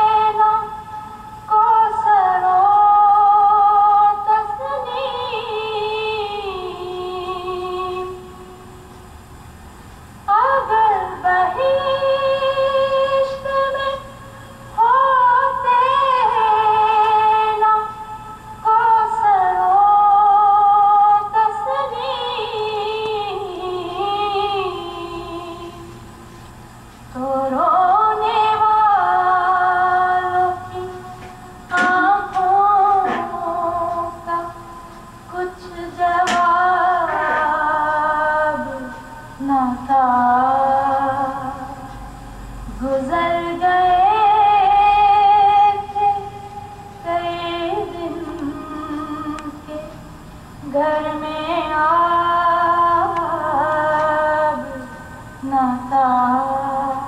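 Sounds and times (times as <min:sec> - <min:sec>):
woman singing a slow lament: 0:00.0 - 0:08.6, 0:10.3 - 0:26.0, 0:27.2 - 0:57.0.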